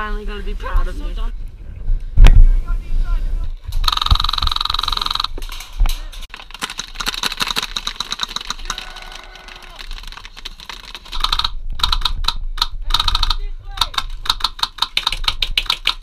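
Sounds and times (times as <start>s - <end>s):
airsoft rifles firing bursts: 6.5s - 16.0s.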